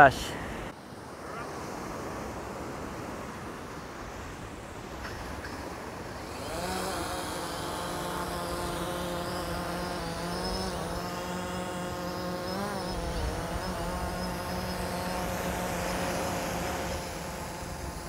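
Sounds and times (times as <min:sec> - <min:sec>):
drone propellers buzzing: 0:04.1 - 0:18.0.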